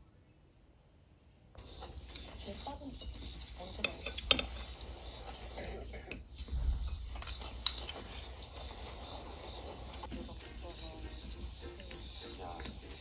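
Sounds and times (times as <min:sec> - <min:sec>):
spoon clinking on ceramic plate: 0:01.6 - 0:04.8.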